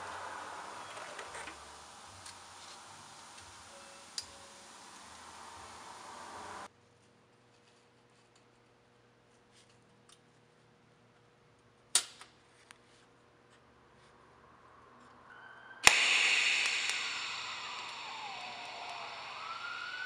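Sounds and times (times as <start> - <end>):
welding arc buzzing hiss: 0.0 - 6.7, 15.8 - 20.0.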